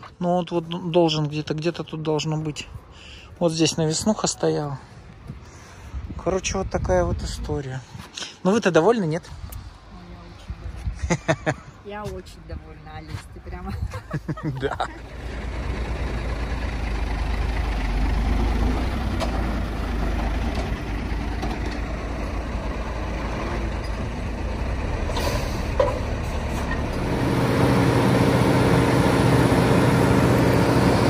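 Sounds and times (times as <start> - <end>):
truck engine running: 14.5 - 31.0.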